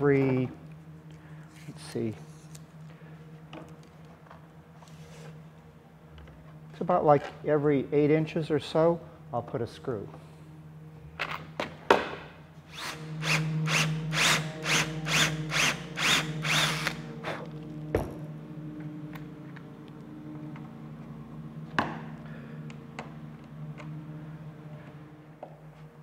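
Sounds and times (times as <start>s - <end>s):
cordless drill bursts: 12.7s - 17.1s.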